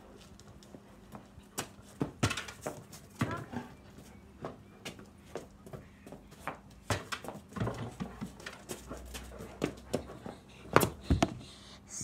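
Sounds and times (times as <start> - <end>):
basketball knocks and scuffs: 6.4 - 11.4.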